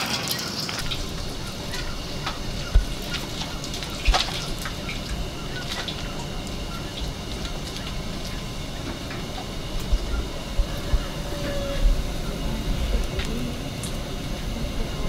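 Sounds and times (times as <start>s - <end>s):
water dripping: 0.0s - 11.2s
steady noise: 0.0s - 15.0s.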